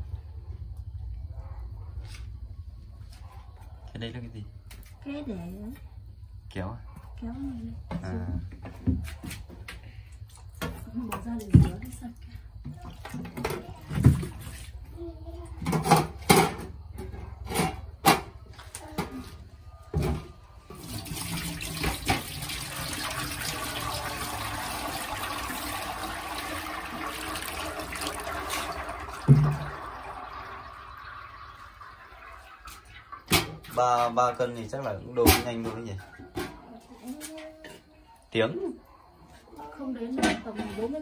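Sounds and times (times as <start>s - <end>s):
knocks and clatters: 15.5s - 19.2s
water running: 20.6s - 34.9s
thump: 29.3s - 29.7s.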